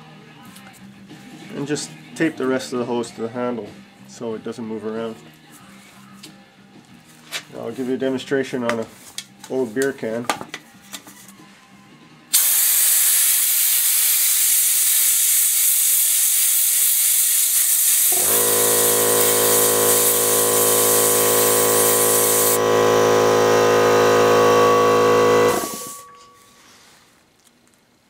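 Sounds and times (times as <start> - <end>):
compressed air blasting hiss: 12.3 - 22.6
steady low hum: 18.2 - 26.7.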